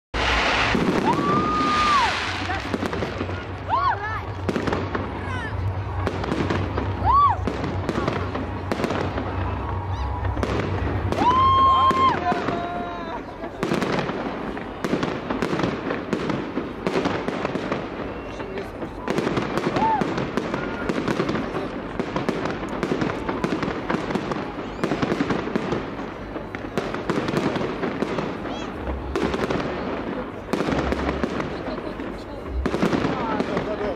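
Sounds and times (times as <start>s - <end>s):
low rumble: 0.2s - 12.2s
fireworks cracks and bangs: 0.2s - 33.9s.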